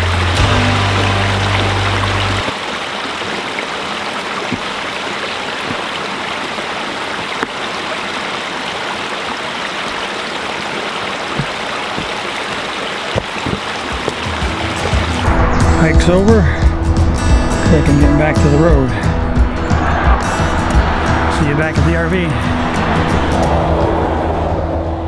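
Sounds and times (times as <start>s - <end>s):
creek running over rocks: 0.0s - 16.6s.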